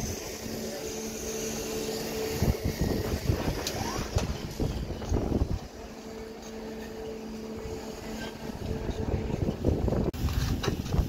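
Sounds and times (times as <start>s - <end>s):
steady engine hum: 0.0s - 11.0s
wind buffeting microphone: 2.1s - 6.0s, 7.5s - 11.0s.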